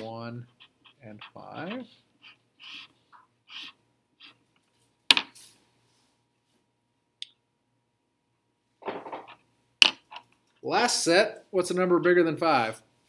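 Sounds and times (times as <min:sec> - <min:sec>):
marker scratching on paper: 0:00.0 - 0:04.5.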